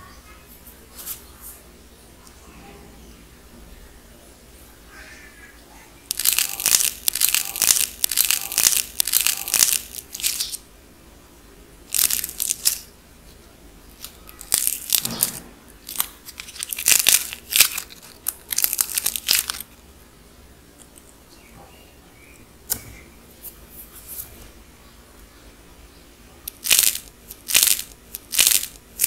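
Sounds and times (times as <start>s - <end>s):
dried clay crackling and crunching: 6.1s - 10.6s, 11.9s - 12.9s, 13.9s - 19.8s, 26.5s - 29.0s.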